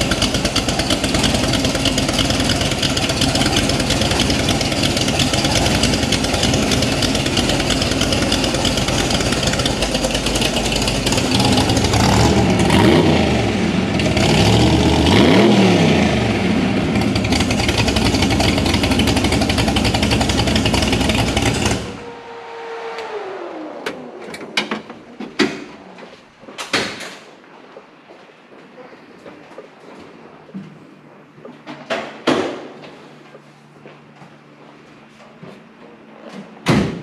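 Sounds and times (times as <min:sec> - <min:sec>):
car engine running and revving: 0:00.0 - 0:26.0
faint falling whine: 0:19.6 - 0:36.6.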